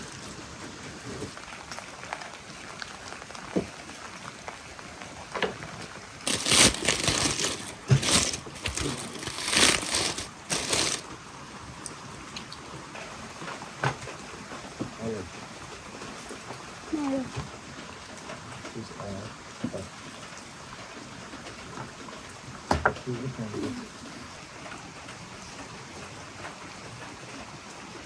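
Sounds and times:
aluminium foil crinkling: 6.2 - 11.1.

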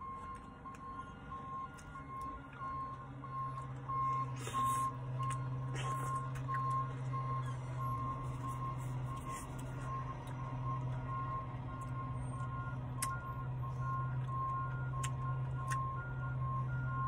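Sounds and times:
low engine hum: 0.0 - 17.0
reversing beeper: 0.0 - 17.0
slurping licks: 4.3 - 6.7, 8.2 - 9.9.

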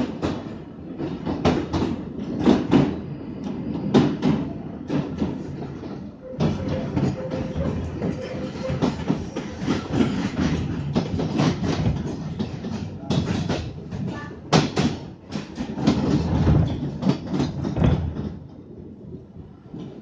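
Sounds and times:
train wheels clattering over joints: 0.0 - 19.0.

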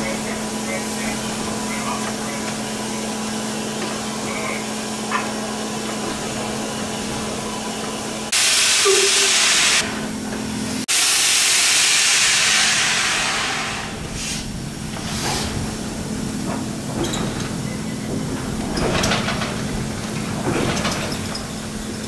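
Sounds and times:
steam hissing: 8.3 - 10.0, 10.9 - 16.0.

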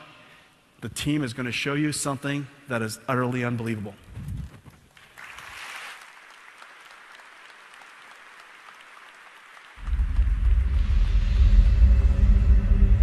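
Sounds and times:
audience applauding: 4.9 - 10.6
deep rumbling soundtrack: 9.8 - 13.0.

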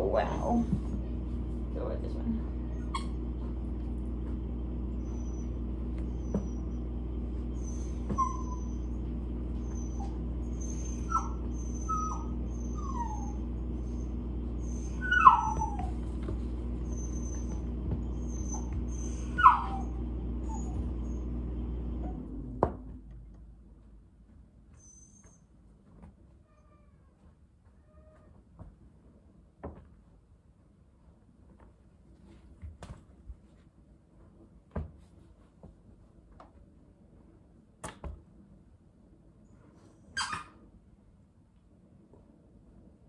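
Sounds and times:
dog whining: 0.0 - 1.0, 2.6 - 3.4, 4.9 - 21.4, 24.7 - 25.6, 39.9 - 40.6
steady low hum: 0.0 - 24.8
dog yelping: 2.7 - 3.2, 7.4 - 21.3, 40.1 - 40.6.

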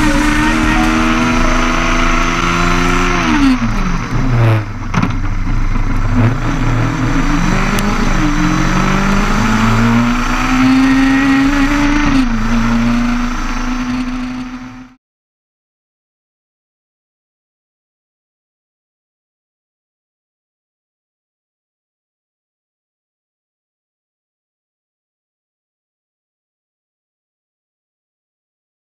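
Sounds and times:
race car engine revving: 0.0 - 15.0.

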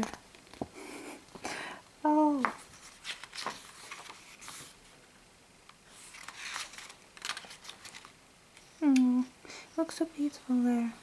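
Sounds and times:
paper pages rustling: 2.5 - 5.0, 5.8 - 8.2.

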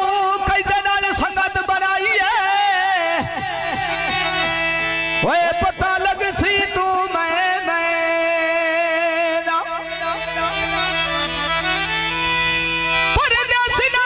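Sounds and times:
reed instrument long notes: 2.8 - 7.4, 9.2 - 14.0.

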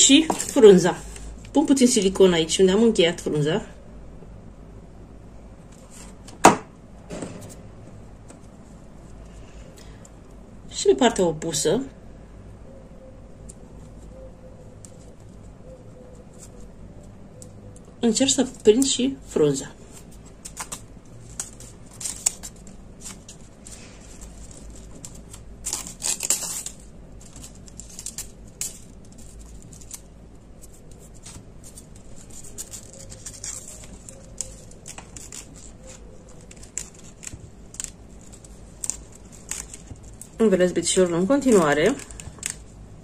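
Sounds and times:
wrapping tape rustling and crinkling: 0.0 - 1.6, 13.4 - 43.0.

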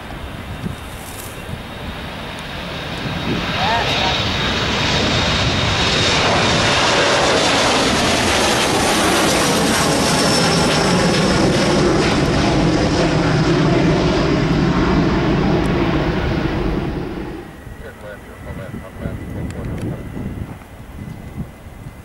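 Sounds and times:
high fan whine: 0.0 - 22.0
jet engine roar: 0.0 - 22.0
low rumble: 11.2 - 21.6.

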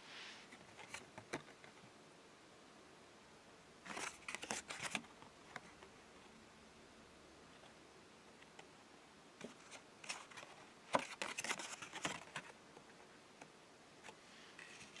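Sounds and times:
paper card clicks and rustles: 0.5 - 1.8, 3.9 - 5.8, 9.4 - 12.6.

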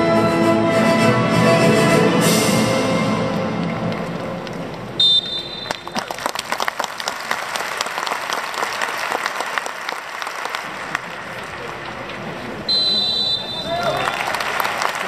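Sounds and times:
high whistle: 5.0 - 6.0, 12.7 - 14.1
crowd clapping: 5.2 - 12.6, 13.6 - 15.0.

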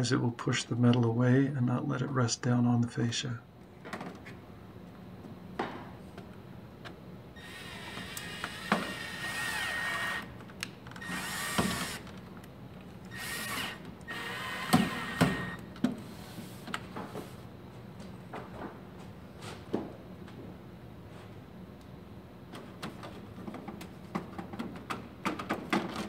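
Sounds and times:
cordless drill whining: 7.4 - 12.1, 13.1 - 15.6.

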